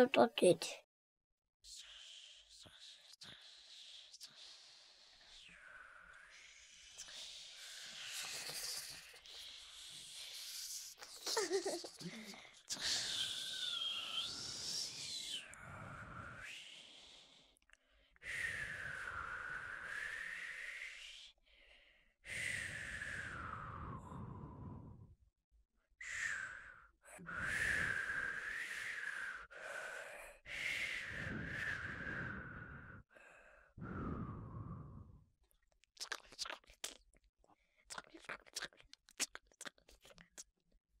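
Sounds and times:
person whistling breathy notes: 12.8s - 16.1s.

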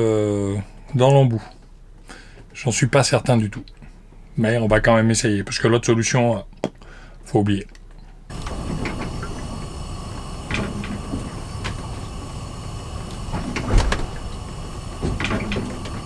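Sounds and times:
gas burner flame hissing: 8.3s - 16.0s.

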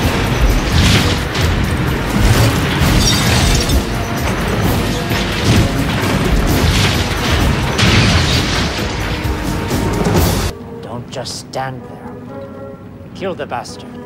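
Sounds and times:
car burning: 0.0s - 10.5s
crashing hits: 0.0s - 10.5s
action film music score: 0.0s - 14.0s.

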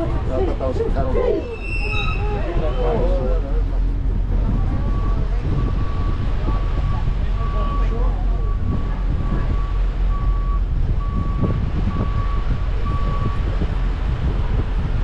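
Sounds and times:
low engine rumble: 0.0s - 15.0s
backup alarm beeping: 4.5s - 13.4s.

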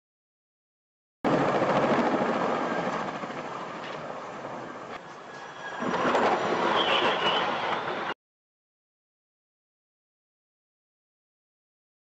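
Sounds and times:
helicopter rotor and engine: 1.3s - 8.1s.

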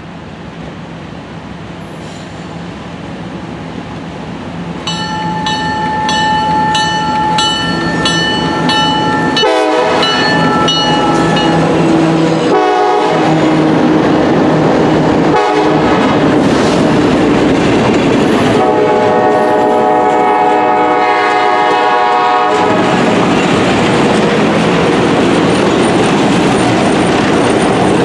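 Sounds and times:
diesel locomotive engines: 0.0s - 28.0s
locomotive bell ringing: 4.8s - 11.9s
short horn blasts: 9.4s - 10.2s, 12.5s - 13.3s, 18.6s - 22.8s.

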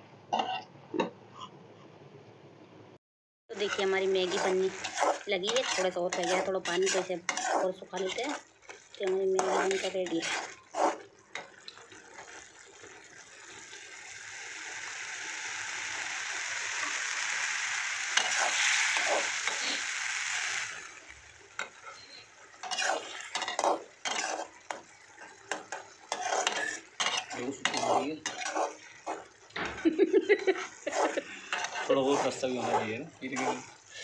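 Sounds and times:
spatula scraping metal pan: 3.5s - 11.5s, 21.6s - 29.4s, 30.4s - 34.0s
noodles sizzling in pan: 3.5s - 34.0s.

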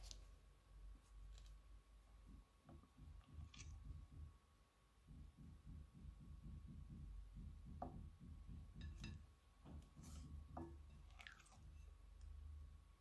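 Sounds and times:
slime squishing: 11.0s - 11.8s.

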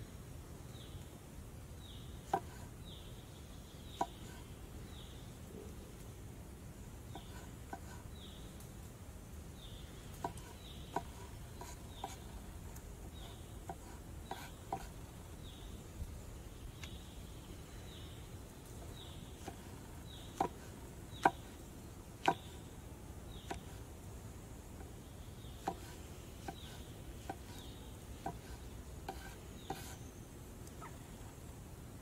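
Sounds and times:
knife tapping on wooden board: 22.2s - 22.4s.

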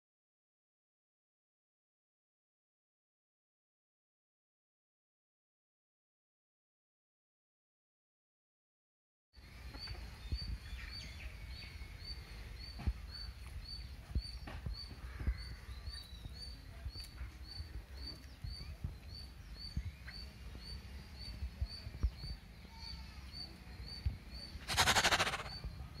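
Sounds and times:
bird short high chirp: 24.6s - 25.6s
loud hissing burst: 24.6s - 25.6s
other birds calling: 24.6s - 25.7s.

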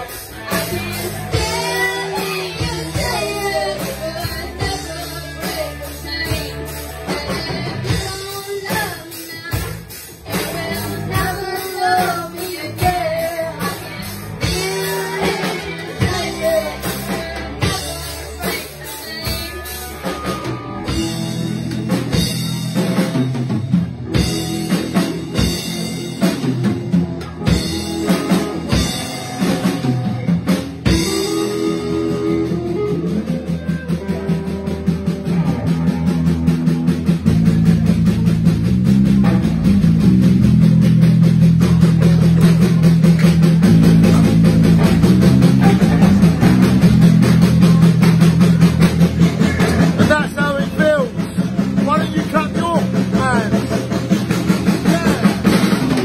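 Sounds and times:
person singing: 0.0s - 21.3s, 30.8s - 34.8s, 49.2s - 56.0s
drum kit: 0.0s - 56.0s
electric guitars: 0.0s - 56.0s.

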